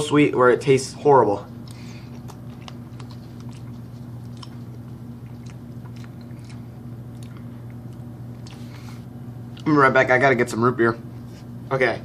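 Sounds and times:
steady low hum: 0.0s - 12.0s
person chewing soft food: 1.6s - 9.7s.

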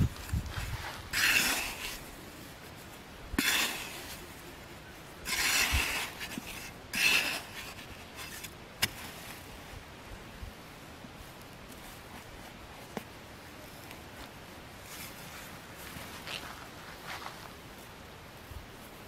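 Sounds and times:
metal blade chopping into soil: 1.1s - 2.0s, 3.4s - 4.2s, 5.2s - 9.0s.

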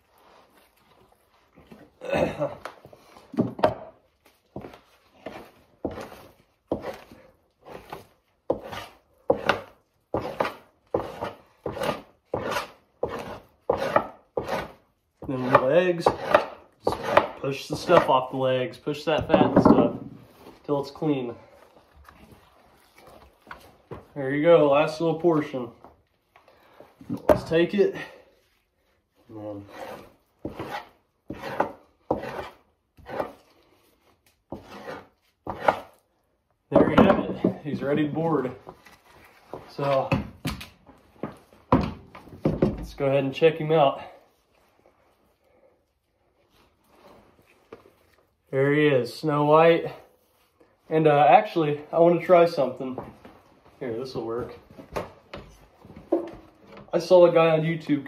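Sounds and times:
knife scraping hide: 4.2s - 18.4s, 29.2s - 36.1s.

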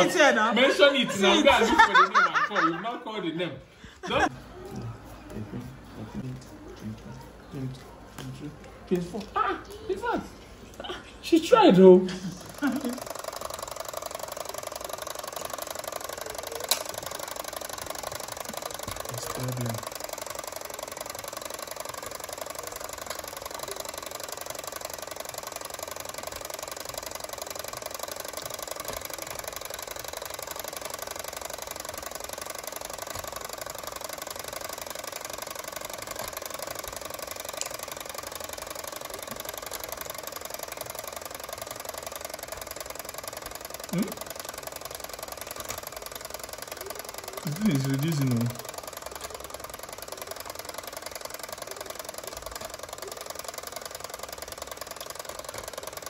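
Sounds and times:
clockwork timer ticking: 11.4s - 56.0s.

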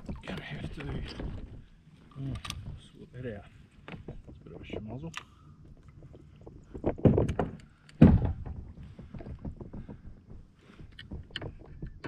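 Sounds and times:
small clicks and rattles: 3.8s - 12.0s
thumps on kayak hull: 7.0s - 10.4s.

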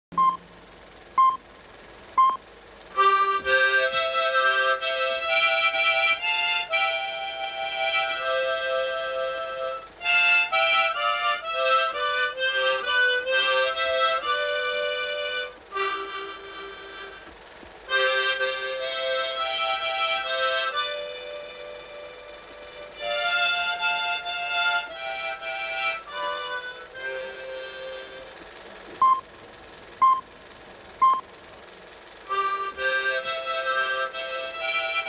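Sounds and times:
short beeps: 0.1s - 0.4s, 1.2s - 1.4s, 2.2s - 2.4s, 29.0s - 29.2s, 30.0s - 30.2s, 31.0s - 31.2s
harmonica melody with chords: 2.9s - 17.3s, 17.9s - 28.4s, 32.3s - 35.0s.

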